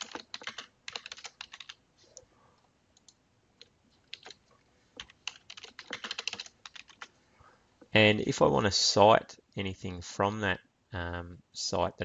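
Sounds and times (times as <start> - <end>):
keyboard typing: 0.0 - 1.8, 3.0 - 7.1.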